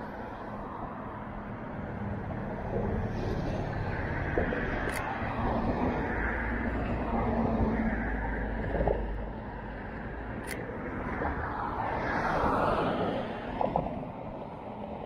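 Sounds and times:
road traffic: 0.0 - 15.0
car passing by: 1.8 - 9.9, 10.9 - 15.0
sharp click: 4.8 - 5.1, 10.4 - 10.7.

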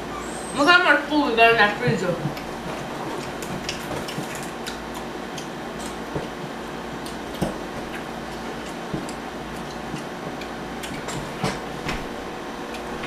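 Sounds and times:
low room hum: 0.0 - 13.0
person chewing and eating: 2.3 - 11.4.

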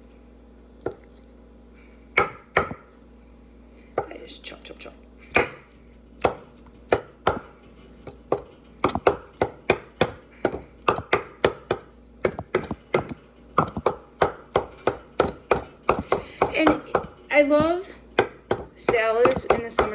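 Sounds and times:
knife chopping on wooden board: 2.2 - 2.9, 5.3 - 5.6, 6.2 - 7.5, 8.3 - 19.9.

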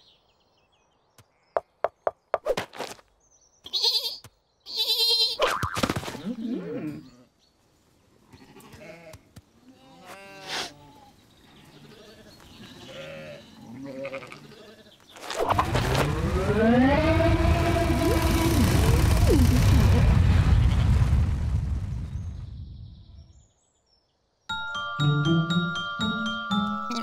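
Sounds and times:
cartoon sheep bleating: 3.7 - 5.4
long drawn-out rising tone: 15.4 - 21.9
loud low rumble: 15.5 - 23.3.

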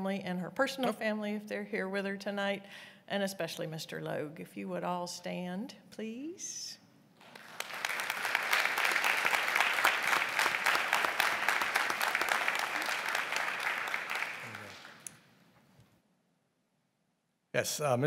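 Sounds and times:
audience applauding: 7.2 - 15.2.

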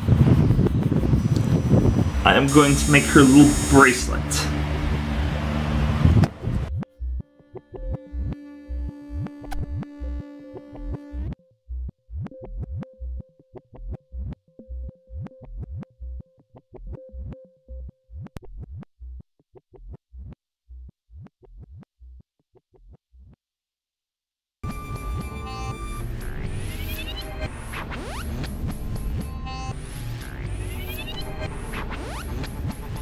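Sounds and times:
synthesizer music with steady beat: 24.6 - 33.0.

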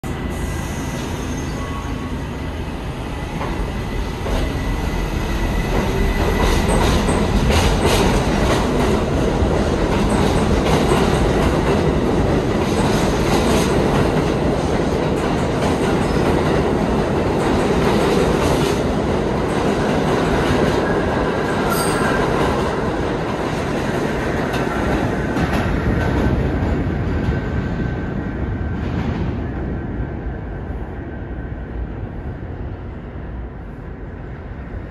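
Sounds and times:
subway train rumbling past: 0.0 - 34.9
train wheel squeal: 0.1 - 8.0, 21.5 - 22.6.

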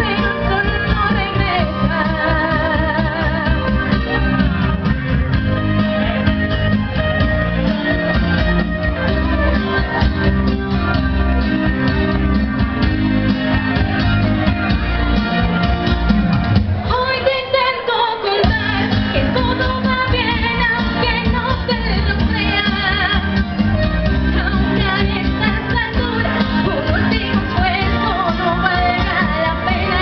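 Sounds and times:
woman singing: 0.0 - 4.2, 16.9 - 30.0
live pop-rock band playing: 0.0 - 30.0.

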